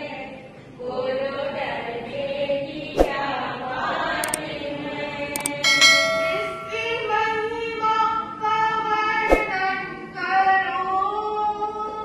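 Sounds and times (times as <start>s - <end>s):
bright ringing tone: 5.4s - 7.4s.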